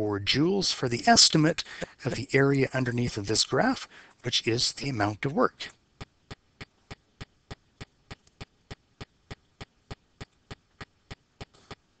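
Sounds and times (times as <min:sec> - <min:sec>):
sharp steady ticking: 0:05.7 - 0:12.0.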